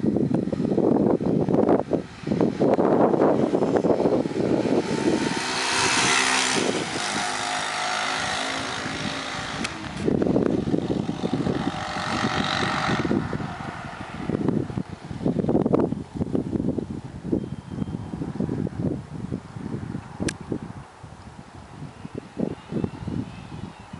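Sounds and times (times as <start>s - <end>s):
motorcycle riding past: 0.0s - 15.4s
wind buffeting microphone: 0.0s - 23.9s.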